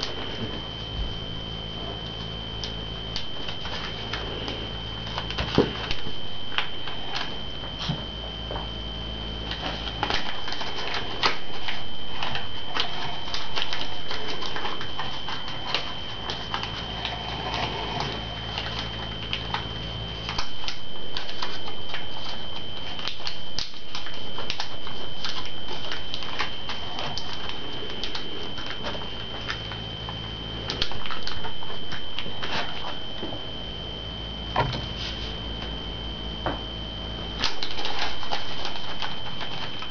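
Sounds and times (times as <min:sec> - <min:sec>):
high-pitched whine: 0:00.0 - 0:39.9
low hum: 0:00.0 - 0:39.9
paper being folded and creased: 0:09.4 - 0:29.8, 0:37.4 - 0:39.9.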